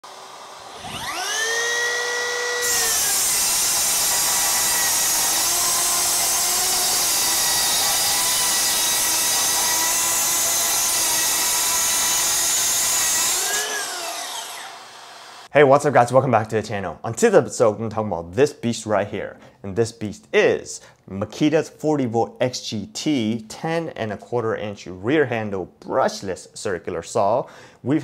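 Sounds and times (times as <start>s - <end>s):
circular saw cutting wood: 0.0s - 15.5s.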